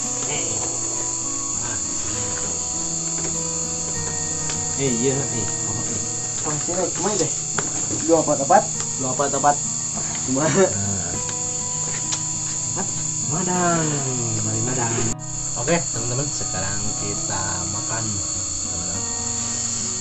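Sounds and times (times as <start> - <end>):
crickets chirring: 0.0 - 20.0
person speaking: 4.6 - 11.3, 12.8 - 19.1.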